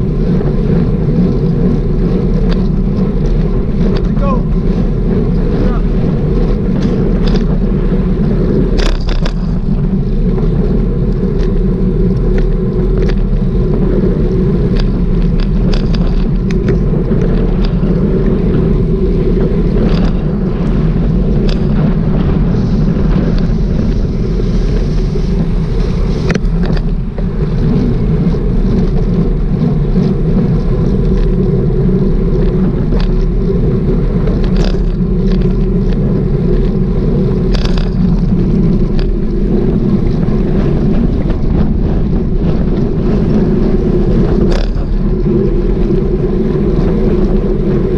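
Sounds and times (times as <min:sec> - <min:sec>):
wheels rolling on asphalt: 0:00.0 - 0:47.9
wind on microphone: 0:00.0 - 0:47.9
sharp clicks over cracks: 0:01.2 - 0:07.6, 0:08.5 - 0:13.8, 0:14.6 - 0:18.5, 0:21.4 - 0:22.2, 0:34.0 - 0:42.8.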